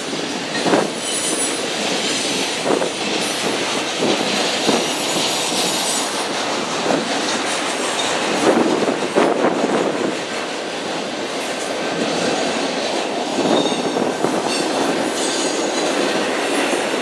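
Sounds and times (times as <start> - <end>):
freight train cars rumbling: 0.0 - 17.0
wheels clacking over rail joints: 0.0 - 17.0
high wheel squeal: 13.4 - 15.8.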